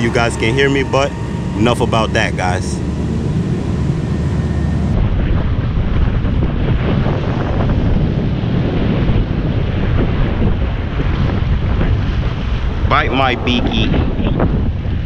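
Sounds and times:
garbage truck passing: 0.0s - 4.9s
wind buffeting microphone: 0.0s - 15.0s.

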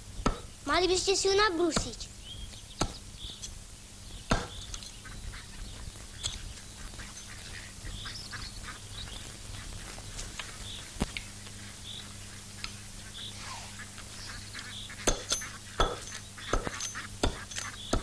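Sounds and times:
steady low hum: 0.0s - 18.0s
axe chopping tree trunk: 0.3s - 0.5s, 4.3s - 4.6s, 15.1s - 18.0s
short bird calls: 4.5s - 18.0s.

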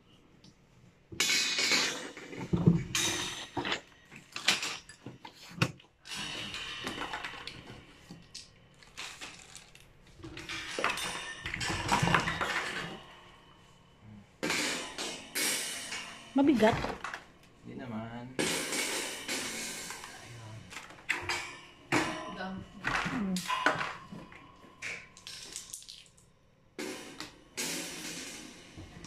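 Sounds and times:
metal wire shelves clinking: 1.2s - 13.6s.

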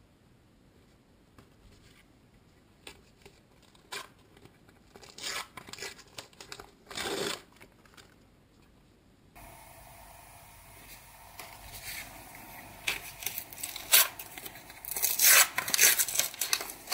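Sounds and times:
sticker packet ripping and crinkling: 3.2s - 8.2s, 11.7s - 16.9s.

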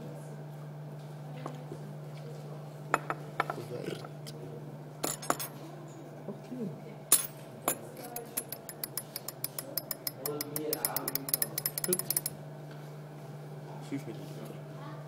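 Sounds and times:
glassware clinking: 5.0s - 5.5s, 7.1s - 12.4s.

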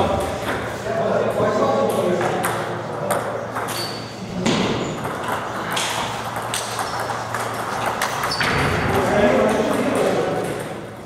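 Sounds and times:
table tennis balls clicking: 4.5s - 11.0s.

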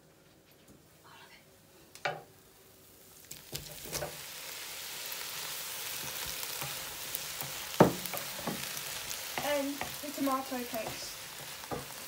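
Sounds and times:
tomatoes sizzling in a wok: 1.8s - 12.0s
utensils knocking against pan: 10.7s - 12.0s.

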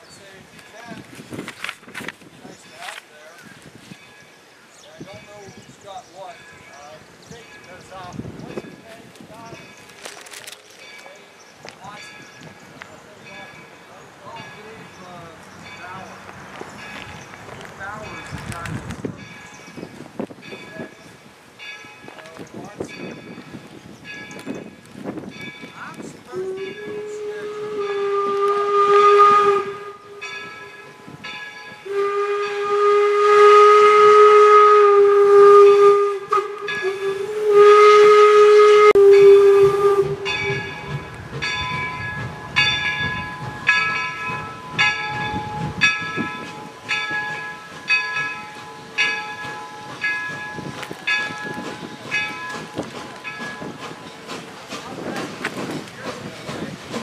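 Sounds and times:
steam locomotive chuffing: 5.0s - 57.0s
steam locomotive whistle: 26.3s - 30.4s, 31.8s - 41.1s.

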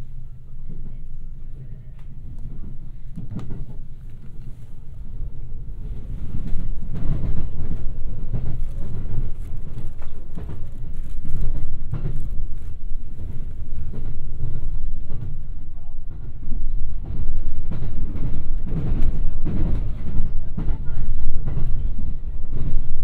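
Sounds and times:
train rumble inside carriage: 0.0s - 23.0s.

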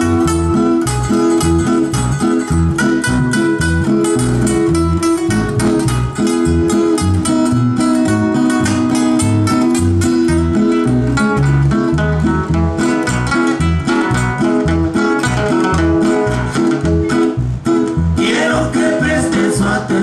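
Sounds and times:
acoustic guitars strumming: 0.0s - 20.0s
man singing: 18.2s - 20.0s.

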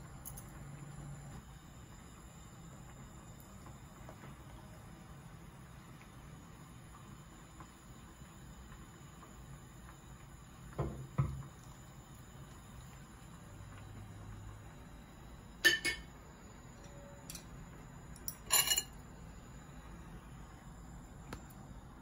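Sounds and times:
dishes and utensils clinking: 15.6s - 16.1s, 18.2s - 19.0s.

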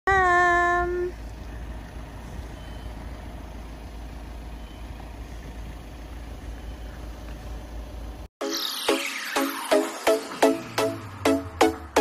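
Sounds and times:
diesel truck engine idling: 0.1s - 8.3s.

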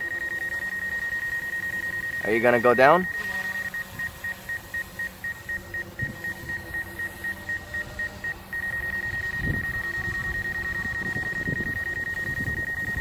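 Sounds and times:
high-pitched electronic warning beep: 0.0s - 13.0s.

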